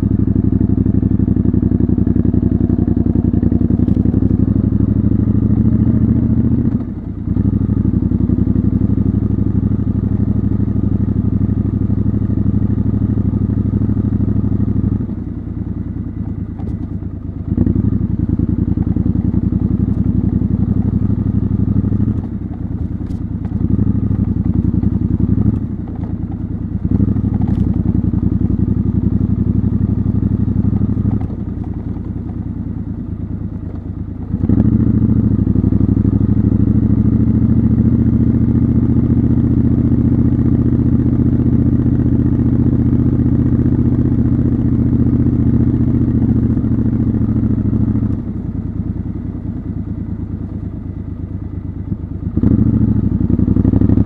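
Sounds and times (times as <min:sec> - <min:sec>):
motorcycle engine and exhaust: 0:00.0 - 0:54.0.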